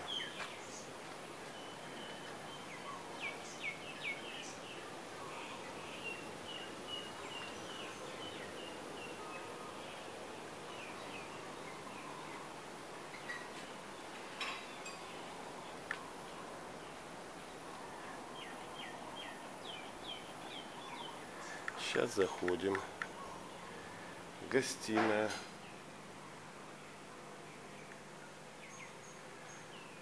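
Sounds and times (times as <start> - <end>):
small birds chirping: 0.0 - 30.0
steady background hiss: 0.0 - 30.0.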